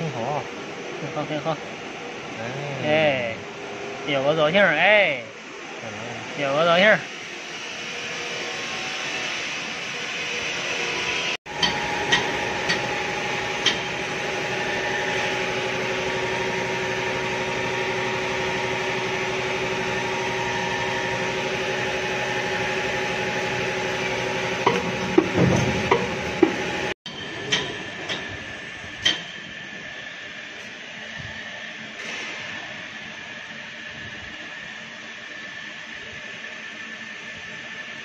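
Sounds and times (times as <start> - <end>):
moulding machine humming: 11.5 - 27.0
clattering knocks: 24.6 - 26.7.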